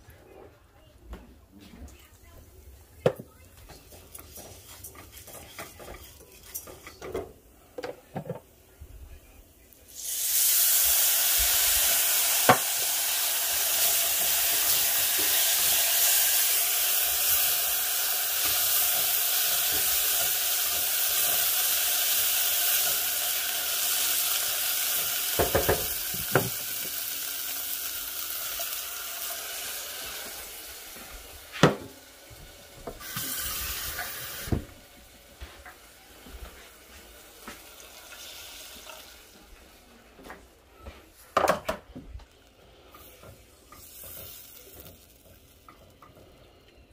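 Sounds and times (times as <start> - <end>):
spoon knocking and scraping pan: 3.0 - 8.5, 24.9 - 26.9
sauce sizzling in a saucepan: 9.7 - 39.8, 42.3 - 46.5.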